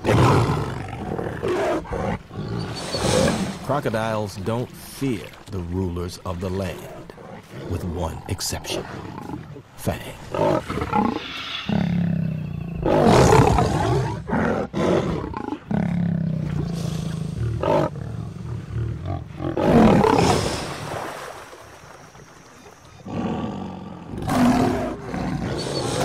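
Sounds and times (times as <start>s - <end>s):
lion snarling: 0.0s - 3.7s, 6.7s - 20.6s, 23.0s - 26.0s.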